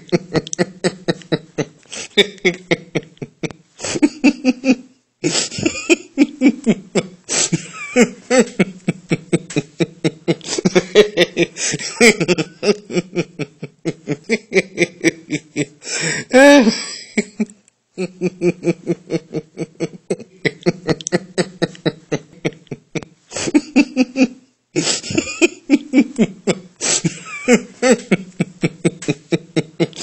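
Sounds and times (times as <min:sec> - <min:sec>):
man laughing heartily: 0:00.0 - 0:30.0
catch of breath: 0:15.9 - 0:16.4.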